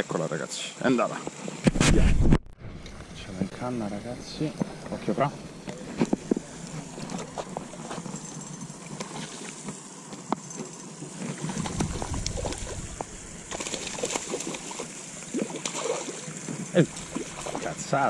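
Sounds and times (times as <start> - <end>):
low rumble: 11.5 - 14.0.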